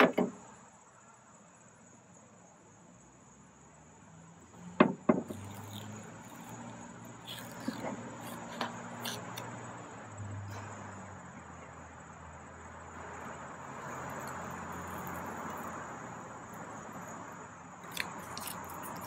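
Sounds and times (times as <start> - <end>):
insect chirring: 0.2 - 11.0, 11.7 - 19.0
masking tape peeling: 5.3 - 9.5, 17.8 - 19.0.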